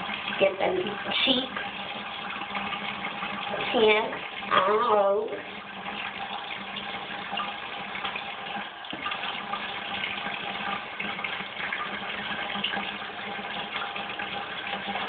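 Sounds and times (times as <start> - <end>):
tap running into a sink: 5.3 - 15.0.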